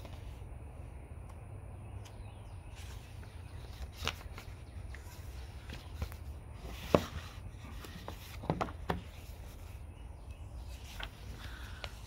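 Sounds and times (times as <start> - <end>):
book pages turning: 0.0 - 0.4, 2.7 - 9.8, 10.6 - 12.0.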